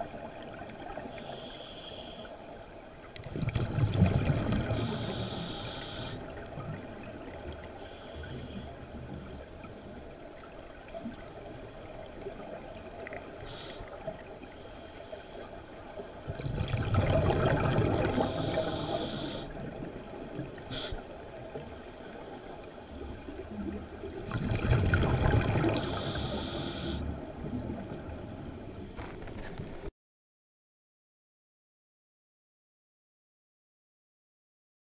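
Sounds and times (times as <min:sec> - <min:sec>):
underwater exhaled bubbles: 0:03.2 - 0:14.5, 0:15.8 - 0:28.8.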